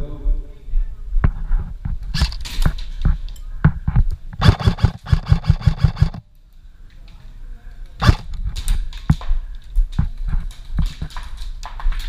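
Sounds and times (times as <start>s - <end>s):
sharp clicks and knocks: 1.8s - 6.2s, 8.0s - 9.3s.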